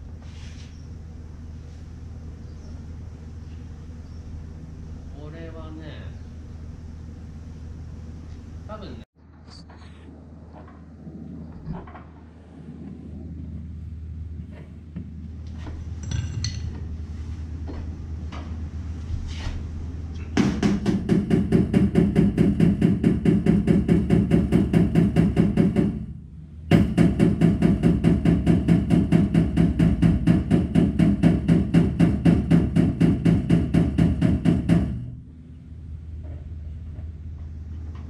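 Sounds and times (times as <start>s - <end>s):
power tool hammering sheet metal: 20.4s - 35.2s.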